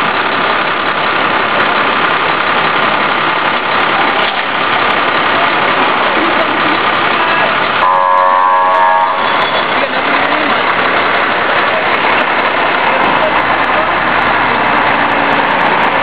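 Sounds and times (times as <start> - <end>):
vehicle engines in traffic: 0.0 - 16.0
voices: 3.8 - 16.0.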